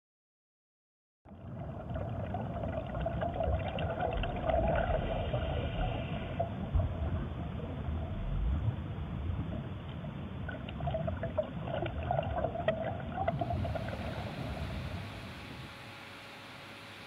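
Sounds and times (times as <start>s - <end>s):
water trickling and bubbling: 1.3s - 15.8s
low rumble: 1.4s - 12.8s
room noise hiss: 13.4s - 17.0s.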